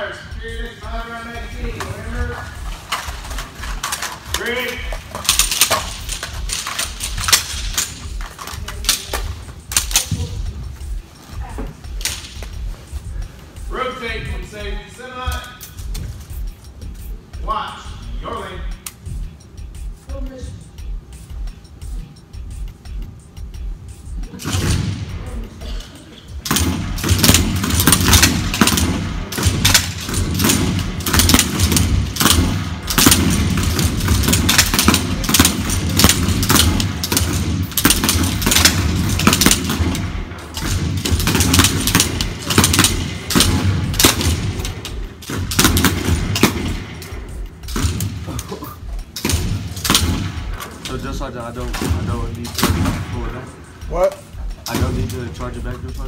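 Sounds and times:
rapid rifle fire: 26.4s - 48.4s, 49.2s - 51.1s, 51.7s - 53.4s.

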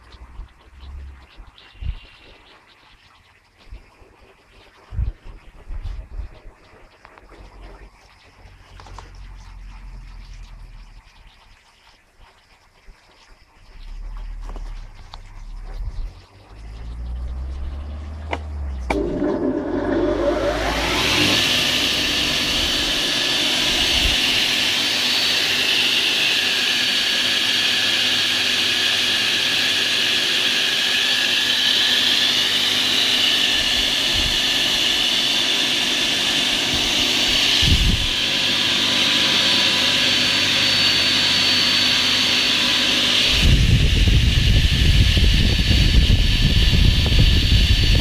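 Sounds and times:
low rumble: 7.3s - 11.5s, 13.7s - 24.8s
circular saw blade whine: 13.8s - 48.0s.

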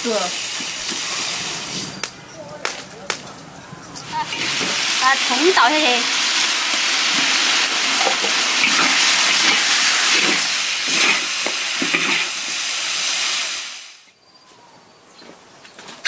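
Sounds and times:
food sizzling in a wok: 0.0s - 2.0s, 4.1s - 14.1s
metal spatula scraping a wok: 8.0s - 12.4s.

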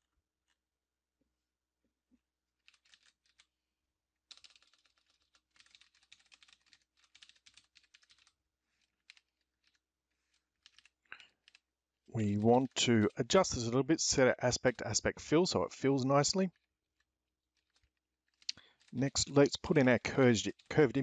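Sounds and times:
keyboard typing: 2.6s - 3.4s, 4.3s - 8.3s.

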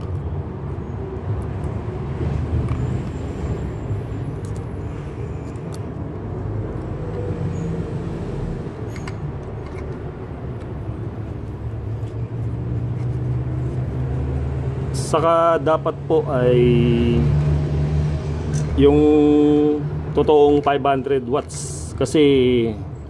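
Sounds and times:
traffic rumble: 0.0s - 23.0s
plastic housing clicks: 8.9s - 10.7s.

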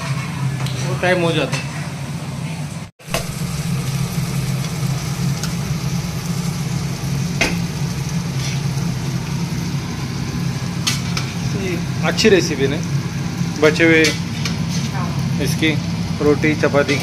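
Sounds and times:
food frying: 3.0s - 17.0s
spatula stirring in pan: 7.4s - 9.7s.

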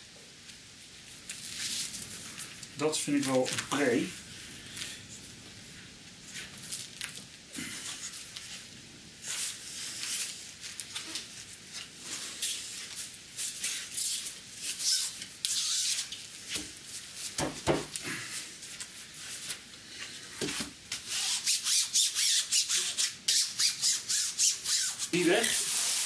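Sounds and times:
hands rubbing rubber strip: 9.2s - 17.4s, 20.4s - 26.0s.

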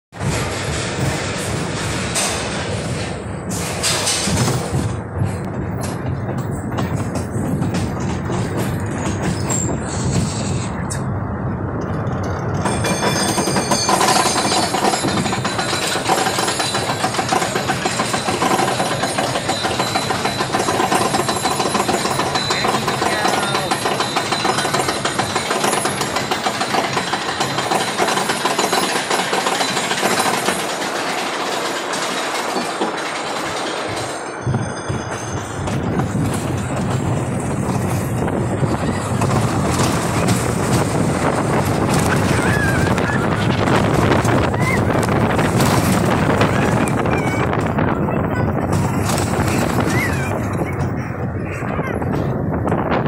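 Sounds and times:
roller coaster wheels on rails: 0.1s - 53.0s
lift chain rattling and clacking: 11.7s - 52.9s.

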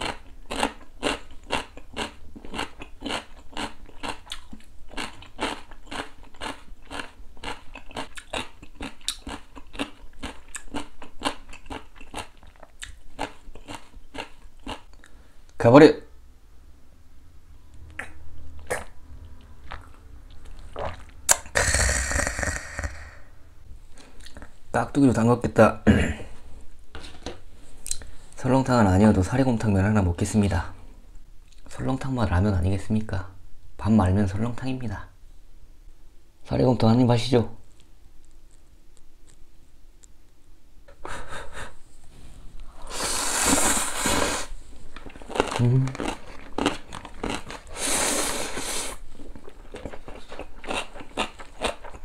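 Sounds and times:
man gulping a drink: 20.7s - 23.3s
person slurping noodles: 20.7s - 23.4s, 42.7s - 44.6s, 47.7s - 49.0s.

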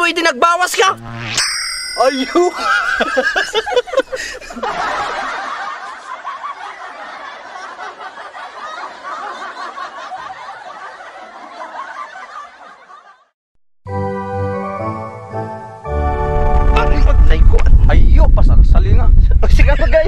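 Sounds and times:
many people laughing: 2.2s - 13.3s
man laughing heartily: 2.4s - 13.3s.

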